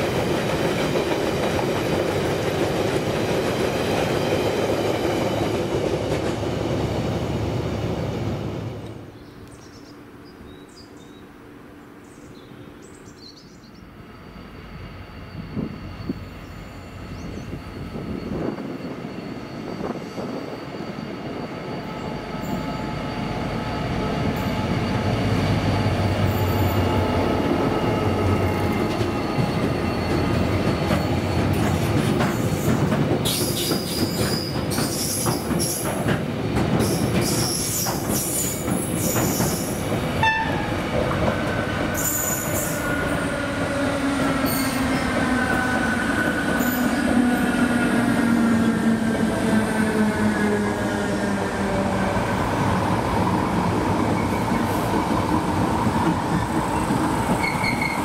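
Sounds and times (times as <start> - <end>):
diesel locomotive engine hum: 0.0 - 58.0
high-pitched wheel squeal: 56.8 - 58.0.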